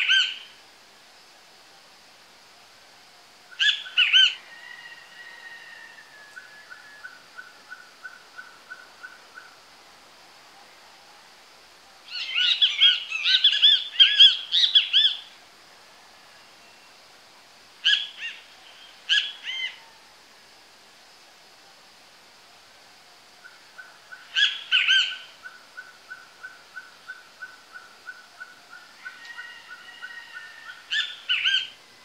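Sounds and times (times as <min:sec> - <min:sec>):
bird song: 0:12.1 - 0:15.3, 0:23.8 - 0:31.8.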